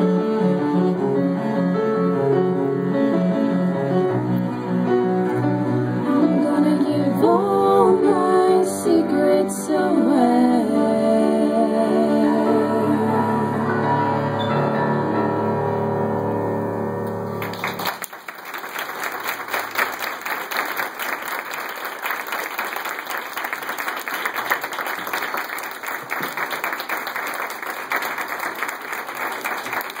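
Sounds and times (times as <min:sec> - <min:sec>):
cello and voices holding a chord: 0:00.0 - 0:14.5
audience applauding: 0:17.4 - 0:30.0.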